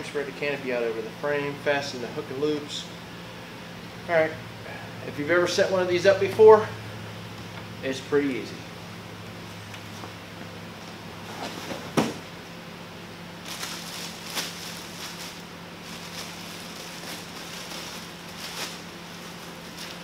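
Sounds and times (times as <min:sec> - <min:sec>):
steady low hum: 0:00.0 - 0:20.0
fabric crinkly rustling: 0:13.4 - 0:20.0.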